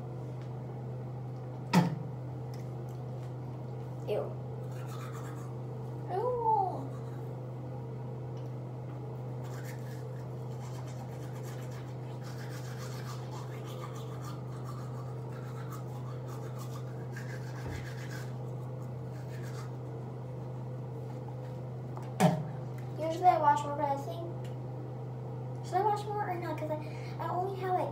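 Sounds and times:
steady low hum: 0.0s - 27.9s
toothbrush scrubbing teeth: 4.6s - 5.6s, 9.4s - 20.0s.

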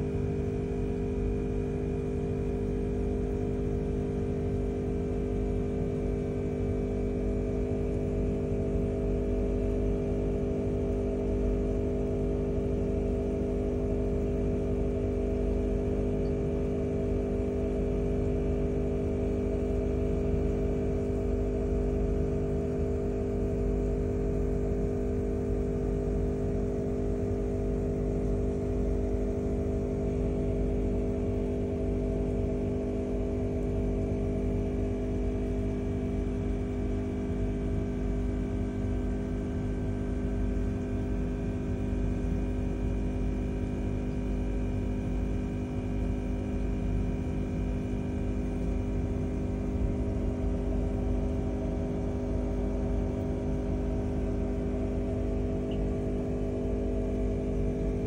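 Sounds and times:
air pump humming: 40.1s - 58.0s.

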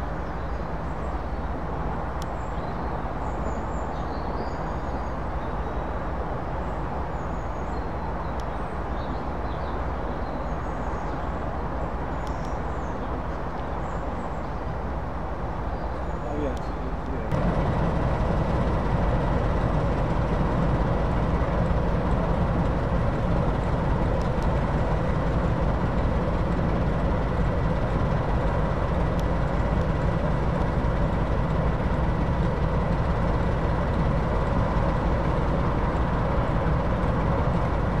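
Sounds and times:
diesel engine idling: 17.3s - 38.0s
thin steady whine: 17.3s - 38.0s.

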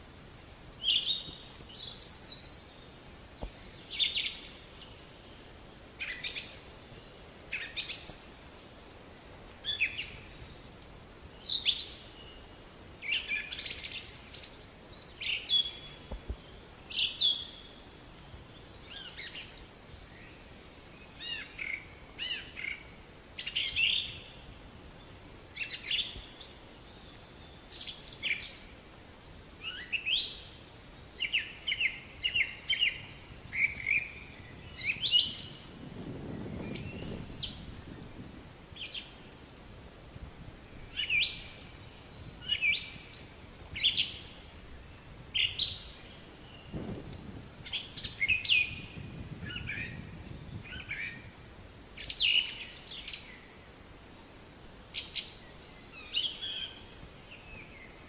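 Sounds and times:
small songbirds chirping: 0.0s - 8.8s, 9.6s - 58.0s.

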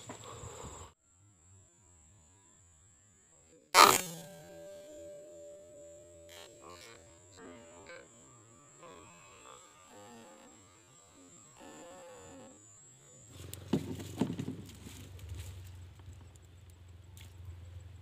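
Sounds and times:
steady low hum: 0.0s - 18.0s
air rifle shot: 3.8s - 4.8s.

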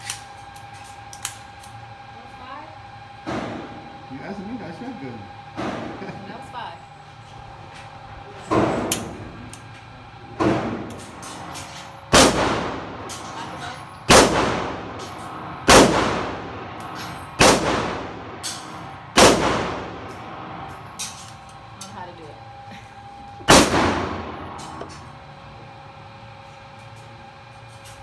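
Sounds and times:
pistol shots echoing indoors: 12.1s - 12.8s, 14.1s - 14.9s, 15.7s - 16.4s, 17.4s - 20.0s, 23.5s - 24.4s.

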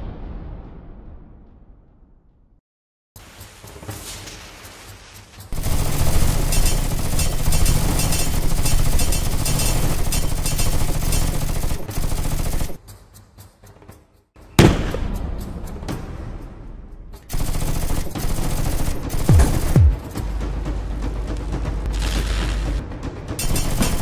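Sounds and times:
automatic gunfire: 5.6s - 12.8s, 17.3s - 20.0s, 23.4s - 24.0s.

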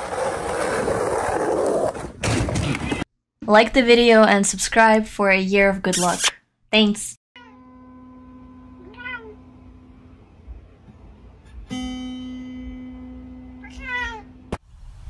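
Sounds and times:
cat meowing: 8.8s - 9.4s, 13.6s - 14.3s.

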